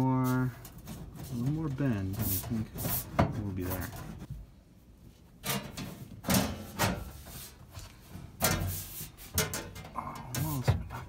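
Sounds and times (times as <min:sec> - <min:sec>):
metal panel clunking and scraping: 0:00.6 - 0:04.3, 0:05.4 - 0:11.0.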